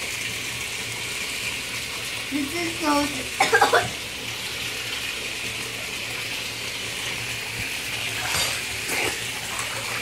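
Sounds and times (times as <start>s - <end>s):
tap water running into bathtub: 0.0s - 10.0s
girl's voice: 2.3s - 3.9s.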